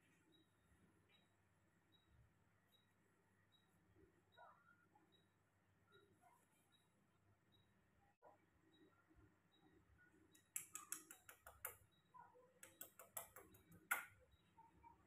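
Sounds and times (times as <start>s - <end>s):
person making kissing clicks: 10.4s - 11.8s, 12.6s - 14.1s.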